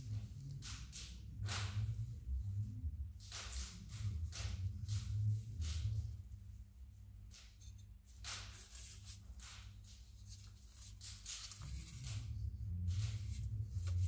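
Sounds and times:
cookie press rustling and scraping: 7.3s - 14.0s.

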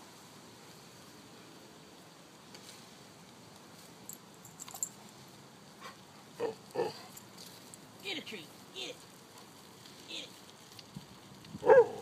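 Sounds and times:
branches clicking and snapping: 9.0s - 12.0s.

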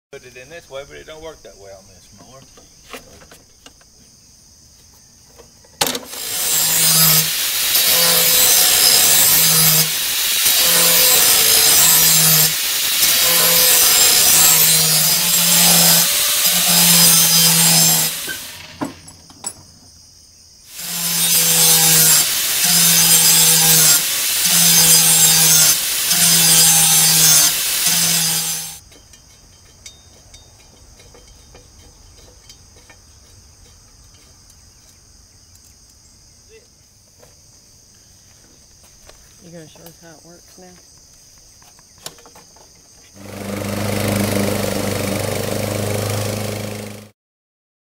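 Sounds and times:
angle grinder sharpening blade: 5.9s - 18.8s, 20.7s - 28.8s.

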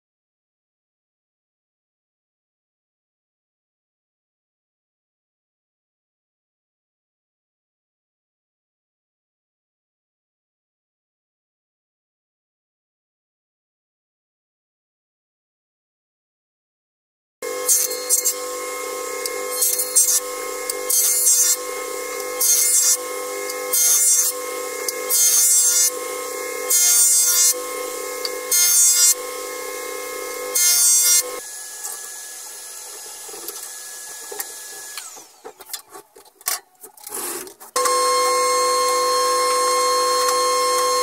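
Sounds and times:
planer machine humming: 17.4s - 36.3s, 37.0s - 41.0s
cutterhead cutting boards: 17.4s - 41.0s.

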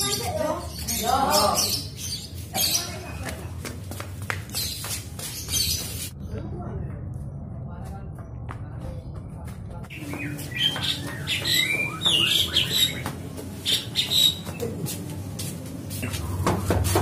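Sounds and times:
birds chirping and squawking: 0.0s - 3.6s, 4.4s - 6.4s, 9.9s - 14.8s.

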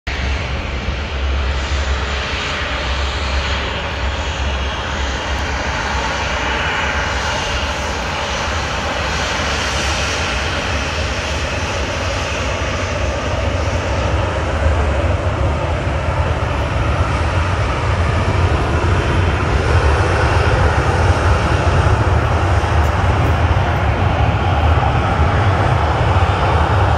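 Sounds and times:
jet engines roaring: 0.1s - 26.9s.

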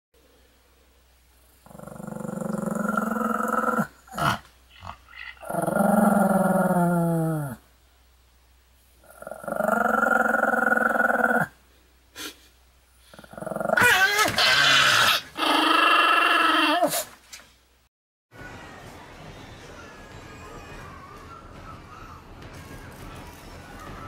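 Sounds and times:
dog growling: 1.6s - 7.6s, 9.0s - 11.6s, 13.1s - 14.0s, 14.6s - 17.1s.

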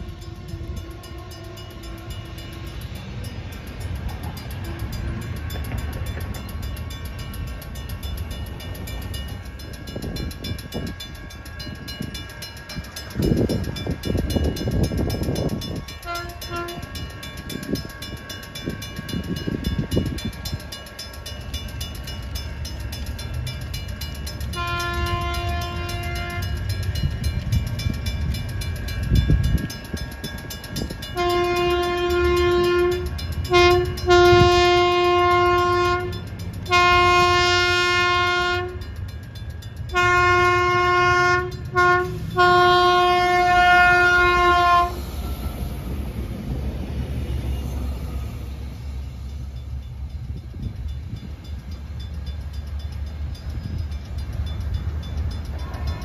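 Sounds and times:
train horn blasts: 0.0s - 2.8s, 4.6s - 5.2s, 15.9s - 17.0s, 24.5s - 26.6s, 31.1s - 38.8s, 39.9s - 45.0s
steady ringing tones: 0.0s - 56.0s.

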